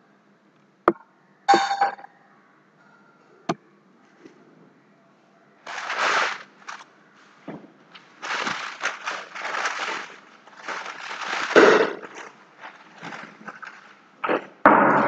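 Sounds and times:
crackling noise bursts: 0:05.6 - 0:14.7.

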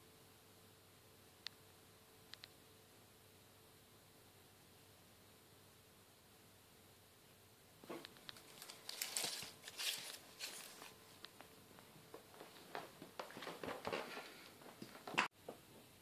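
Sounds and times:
faint rustling: 0:07.8 - 0:15.2.

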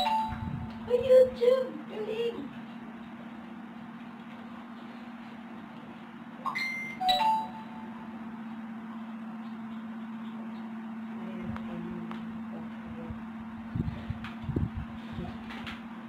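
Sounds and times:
steady low hum: 0:00.0 - 0:16.0
two-note electronic chime: 0:06.5 - 0:08.1.

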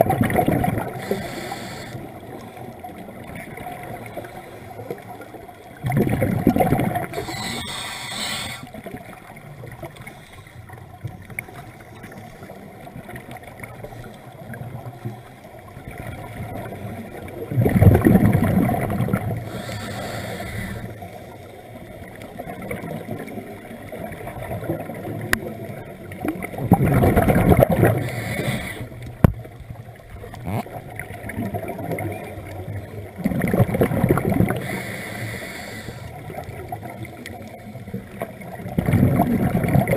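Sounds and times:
exhaled bubbles rushing underwater: 0:00.0 - 0:39.9
steady underwater noise: 0:00.0 - 0:39.9
brief hiss: 0:07.2 - 0:08.7.

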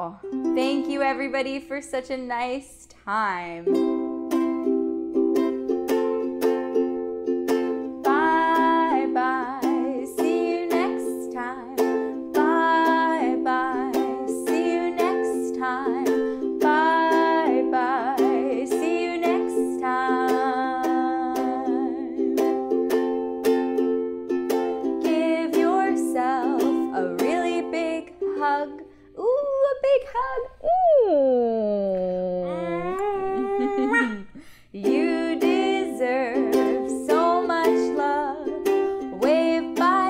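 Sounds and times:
ukulele strumming: 0:00.0 - 0:01.8, 0:03.6 - 0:29.0, 0:32.5 - 0:40.0
woman singing: 0:00.5 - 0:01.4, 0:07.9 - 0:22.5, 0:24.9 - 0:30.8, 0:32.5 - 0:40.0.

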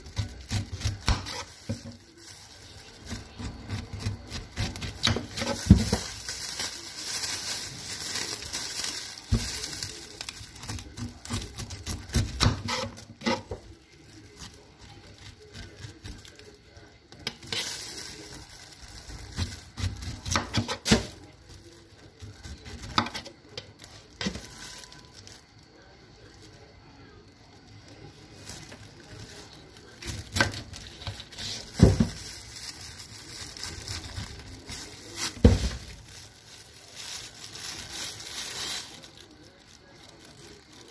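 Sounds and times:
knife slicing through pineapple rind: 0:10.6 - 0:13.6, 0:19.4 - 0:21.2.

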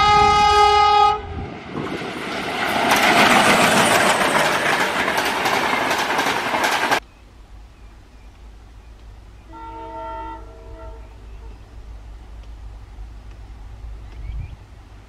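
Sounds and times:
locomotive horn: 0:00.0 - 0:01.5, 0:09.4 - 0:11.6
train coaches rushing past: 0:00.0 - 0:07.0
wheels clattering over rail joints: 0:01.6 - 0:07.0.

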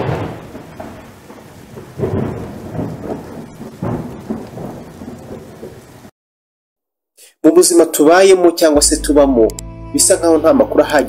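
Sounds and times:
deep rumbling booms: 0:00.0 - 0:06.1
steady hiss: 0:00.0 - 0:06.1.

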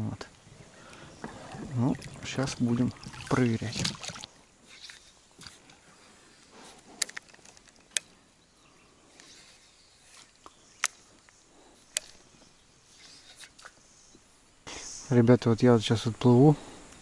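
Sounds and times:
faint rustling: 0:00.2 - 0:15.1
sharp clicks: 0:07.0 - 0:08.2.

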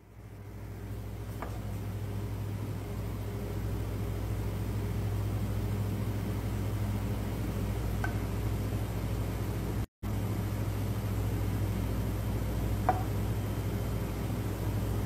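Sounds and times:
low machine hum with hiss: 0:00.0 - 0:15.0.

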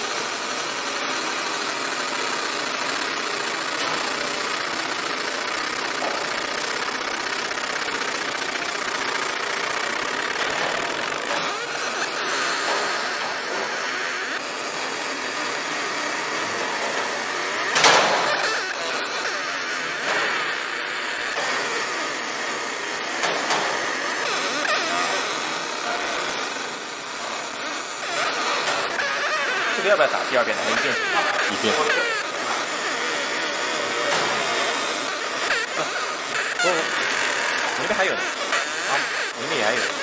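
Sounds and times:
laser hissing: 0:00.0 - 0:40.0.

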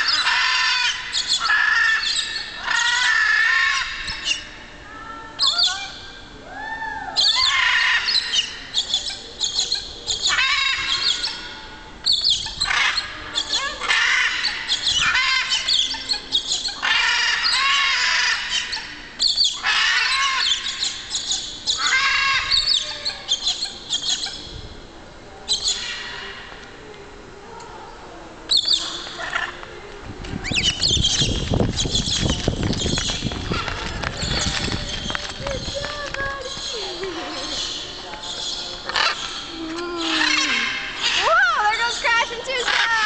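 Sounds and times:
macaws squawking: 0:00.0 - 0:04.5, 0:07.2 - 0:24.4, 0:30.5 - 0:43.0.

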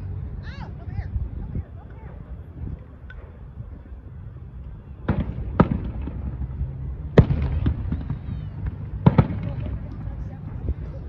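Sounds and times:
firework shells booming: 0:05.0 - 0:10.3
fireworks crackling: 0:05.0 - 0:11.0.

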